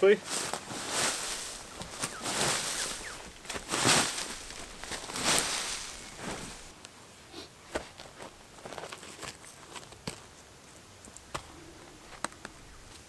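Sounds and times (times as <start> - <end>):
boots scuffing through leaves: 0.1 - 6.7.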